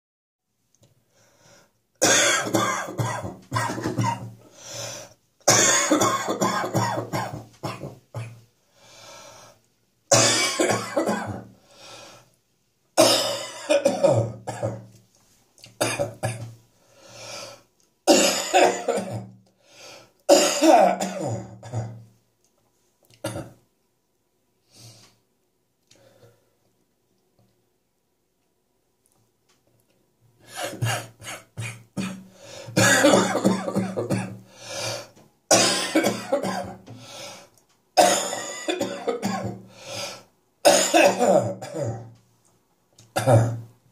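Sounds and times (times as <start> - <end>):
man clearing his throat: 2.0 - 4.4, 32.8 - 34.4, 40.7 - 42.1, 43.2 - 43.7
man coughing: 2.0 - 4.4, 5.5 - 8.4, 18.1 - 19.3, 30.5 - 32.2, 32.8 - 34.4, 35.5 - 36.8, 38.0 - 39.6, 40.7 - 42.1, 43.2 - 43.6.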